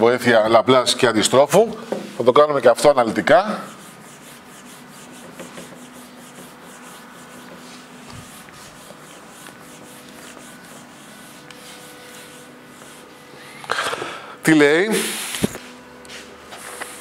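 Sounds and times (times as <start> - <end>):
eraser rubbing on whiteboard: 3.6 - 13.6.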